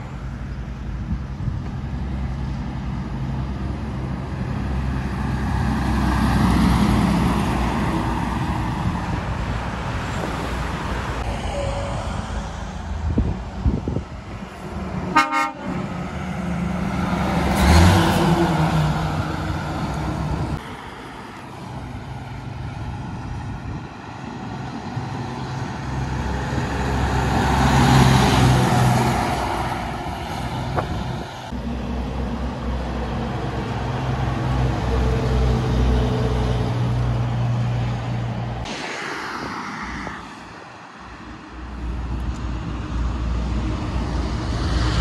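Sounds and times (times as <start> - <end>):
truck engine running at low speed: 0.0 - 7.7
diesel trucks driving past: 0.0 - 45.0
truck air horn toot: 15.1 - 15.9.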